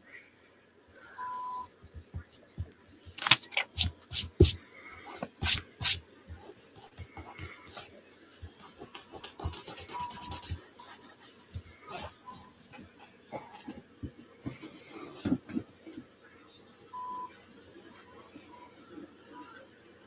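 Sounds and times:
faint short beep: 1.2s - 1.7s
paper crinkling and scratching: 3.1s - 11.6s.

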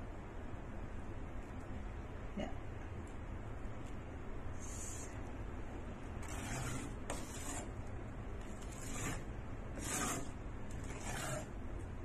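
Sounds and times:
spoon stirring and scraping pot: 6.2s - 7.8s, 8.4s - 11.6s.

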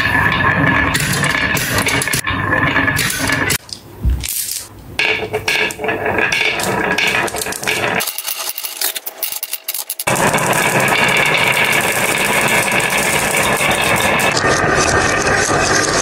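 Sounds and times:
glass marbles rolling on wood: 5.0s - 16.0s.

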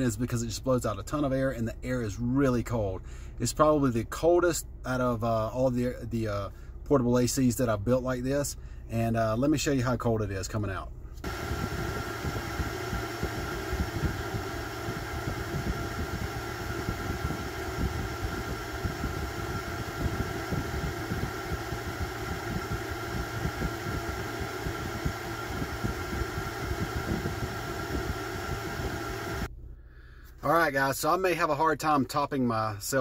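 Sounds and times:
air blower motor whine: 11.2s - 29.5s
rushing air: 11.2s - 29.5s
wind buffeting microphone: 11.3s - 29.5s.

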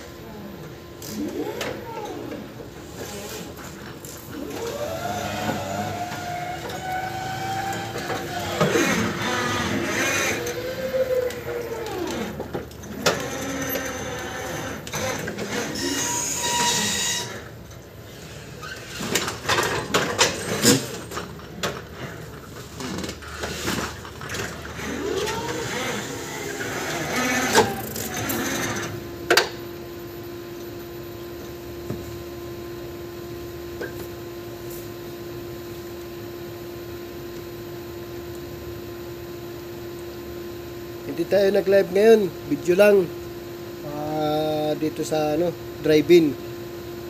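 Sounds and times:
steady hum: 0.0s - 47.0s
electric motor whining: 4.3s - 17.4s, 24.6s - 29.6s.

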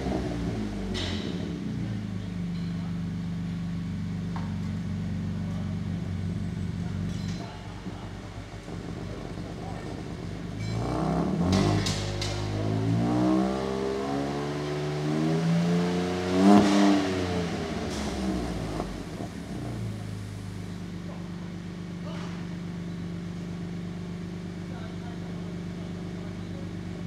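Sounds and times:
engine revving and idling: 0.0s - 27.0s.

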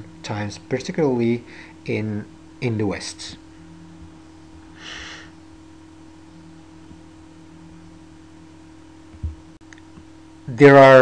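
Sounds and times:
faint electrical hum: 0.0s - 11.0s
single breath: 4.8s - 5.3s.

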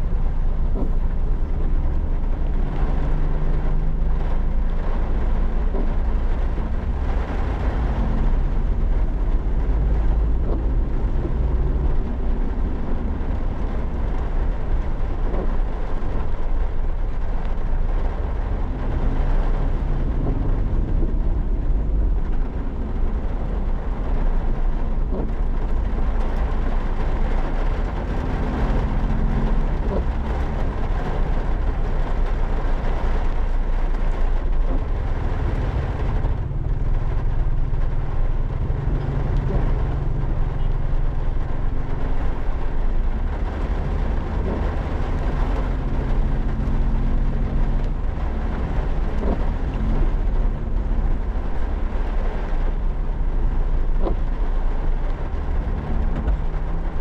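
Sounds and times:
rain hissing: 0.0s - 57.0s
van engine and road rumble: 0.0s - 57.0s.

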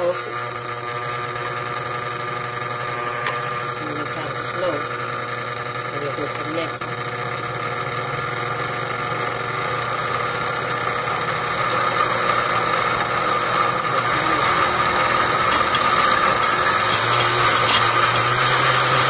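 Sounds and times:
blender motor churning: 0.0s - 19.0s.

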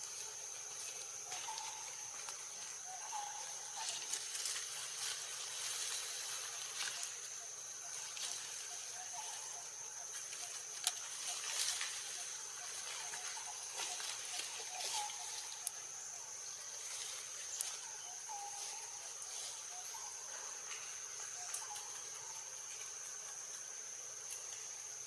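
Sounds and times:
high-pitched insect trill: 0.0s - 25.0s.

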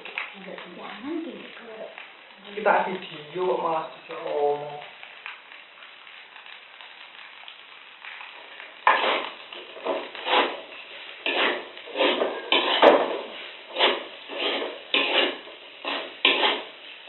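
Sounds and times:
faint sizzle: 0.0s - 17.0s
utensils scraping metal wok: 8.3s - 17.0s.

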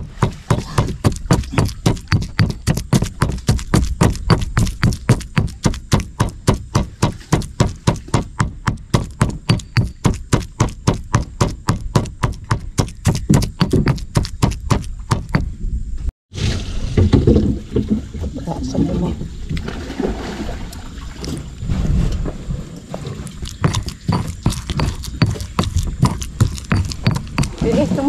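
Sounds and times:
pestle pounding in a mortar: 0.0s - 15.5s, 23.3s - 28.0s.

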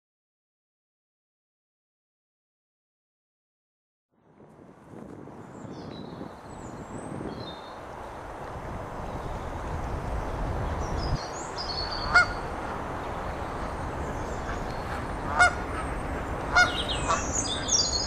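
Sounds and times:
steady background noise: 7.7s - 18.0s
small birds chirping: 9.0s - 18.0s
goose honking: 11.9s - 12.4s, 14.4s - 15.9s, 16.5s - 17.7s.

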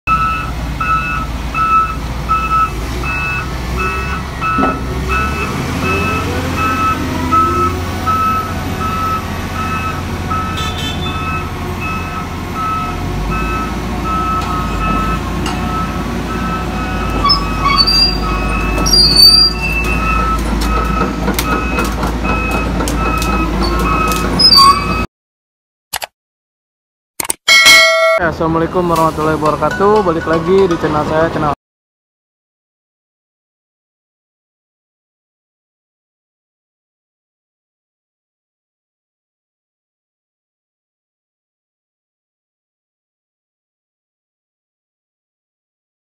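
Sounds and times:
diesel engine running: 0.1s - 25.0s
backup alarm beeping: 0.1s - 25.1s.

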